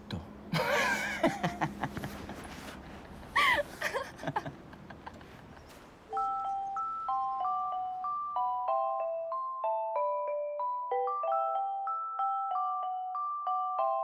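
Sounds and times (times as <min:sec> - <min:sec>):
man and woman laughing: 0:00.5 - 0:02.5, 0:03.3 - 0:05.5
glockenspiel melody: 0:06.1 - 0:14.0.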